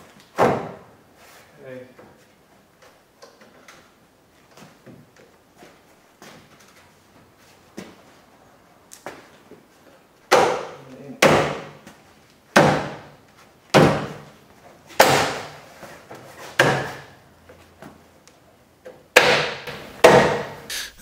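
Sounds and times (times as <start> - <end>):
hand blows on plastic pad: 20.7 - 21.0.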